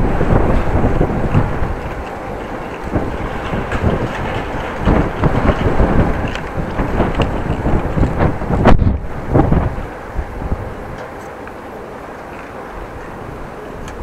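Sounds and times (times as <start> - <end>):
bicycle knocks and rattles: 0.0 - 9.7
wind buffeting microphone: 0.0 - 14.0.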